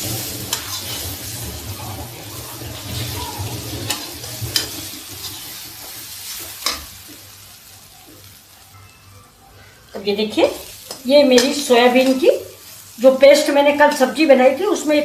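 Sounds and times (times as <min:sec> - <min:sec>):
spoon scraping a pan: 0:00.0 - 0:07.3
oil sizzling: 0:00.0 - 0:15.0.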